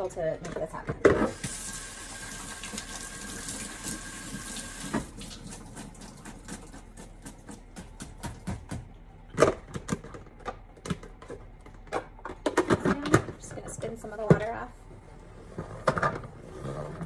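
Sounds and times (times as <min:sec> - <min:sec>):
faucet running water: 0:01.3 - 0:06.8.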